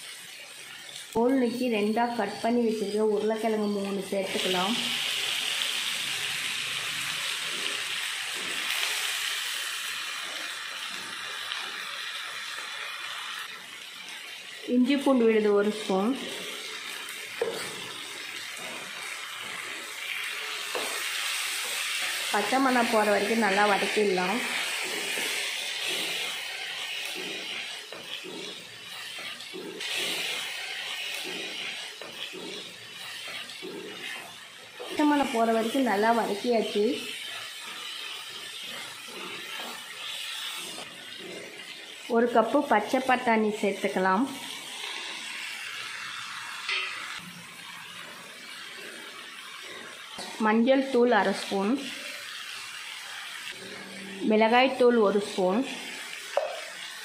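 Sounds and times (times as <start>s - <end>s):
vegetables sizzling in oil: 0.0s - 57.0s
wooden spatula scraping pan: 15.0s - 43.6s.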